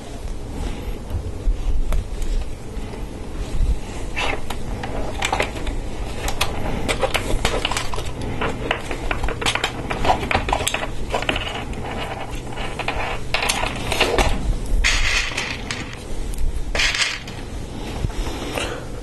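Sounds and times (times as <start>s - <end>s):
plastic parts clicking and rattling: 4.3s - 16.0s, 16.7s - 17.4s.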